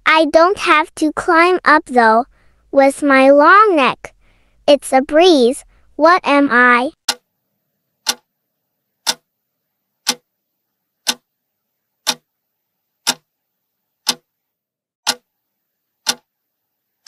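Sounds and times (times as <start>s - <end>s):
clock ticking: 7.0s - 7.2s, 8.0s - 8.2s, 9.0s - 9.2s, 10.0s - 10.2s, 11.0s - 11.2s, 12.0s - 12.2s, 13.0s - 13.2s, 14.1s - 14.3s, 15.0s - 15.2s, 16.0s - 16.2s.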